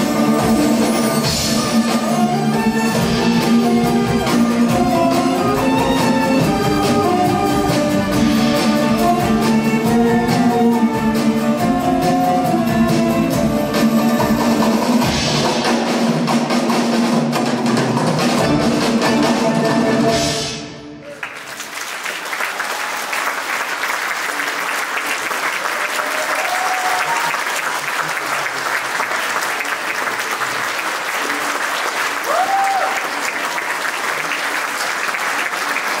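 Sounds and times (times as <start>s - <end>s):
audience applause: 21.0s - 36.0s
high calls from audience: 25.6s - 27.6s, 32.2s - 33.3s.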